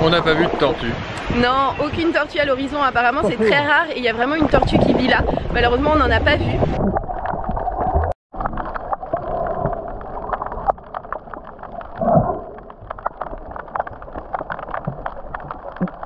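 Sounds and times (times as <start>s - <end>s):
water swirl: 0.0s - 16.0s
crackle of small clicks: 7.2s - 16.0s.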